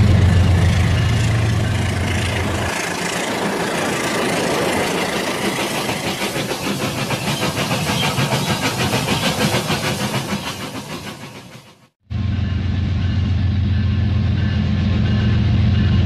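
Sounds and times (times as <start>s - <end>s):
wheels clattering on track: 0.0s - 11.9s.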